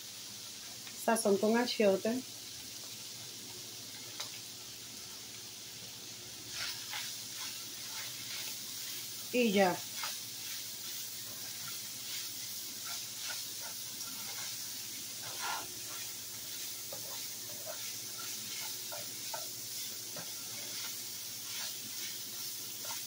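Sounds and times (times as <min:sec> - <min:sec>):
beef sizzling in skillet: 0:00.0 - 0:23.0
spatula scraping skillet: 0:06.5 - 0:23.0.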